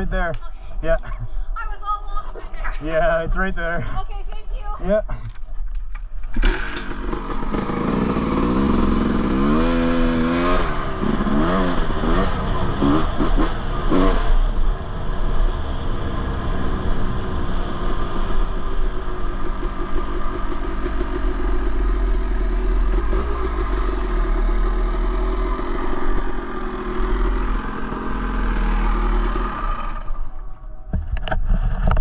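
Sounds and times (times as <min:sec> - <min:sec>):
two-stroke motorcycle engine running: 0:06.5 - 0:14.5, 0:16.8 - 0:30.7.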